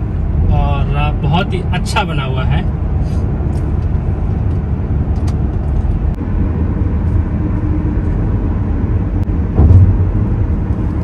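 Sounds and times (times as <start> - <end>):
road and wind noise: 0.0 - 11.0.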